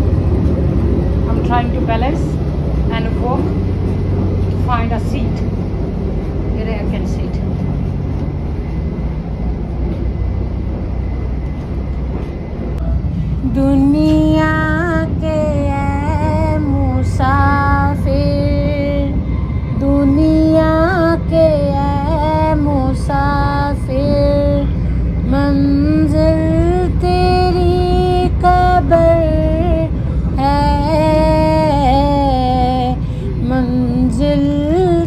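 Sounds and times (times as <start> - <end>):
steady low hum: 0.0 - 35.0
woman singing slow melody: 13.1 - 35.0.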